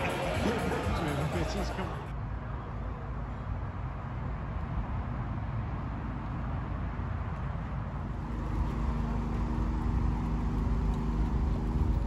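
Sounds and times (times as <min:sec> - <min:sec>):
low background rumble: 0:08.0 - 0:12.0
car engine idling: 0:08.1 - 0:12.0.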